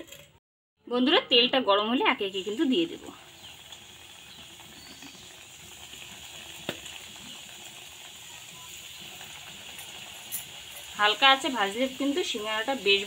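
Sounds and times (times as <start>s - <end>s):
samosas frying in hot oil: 1.3s - 13.0s.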